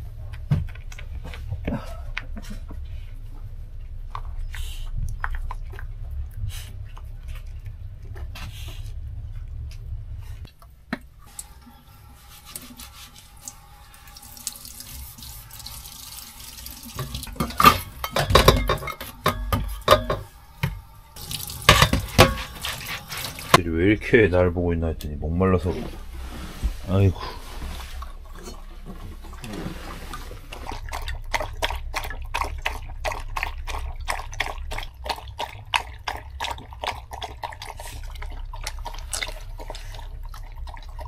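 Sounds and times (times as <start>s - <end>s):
low steady hum: 0.0s - 41.0s
tap running water: 10.9s - 23.6s
metal dishes clattering in sink: 16.9s - 20.8s, 21.4s - 23.6s.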